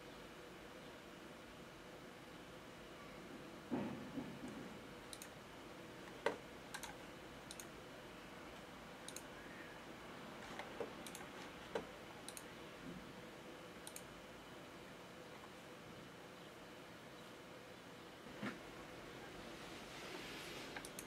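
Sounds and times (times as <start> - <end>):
faint steady hum: 0.0 - 21.0
computer mouse clicks: 5.1 - 5.4, 6.1 - 7.7, 9.0 - 9.3, 10.5 - 12.5, 13.8 - 14.1, 20.8 - 21.0.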